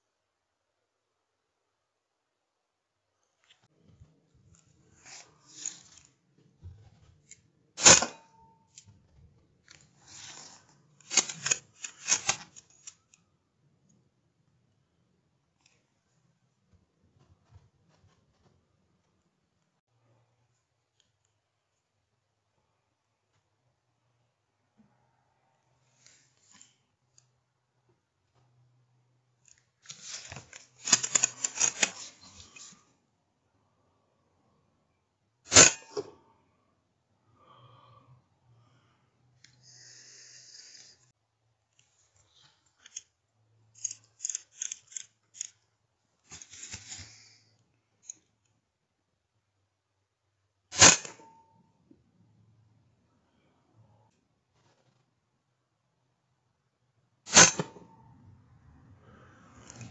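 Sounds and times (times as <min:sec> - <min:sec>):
rifle handling rustling: 0:10.2 - 0:13.0, 0:29.8 - 0:32.8.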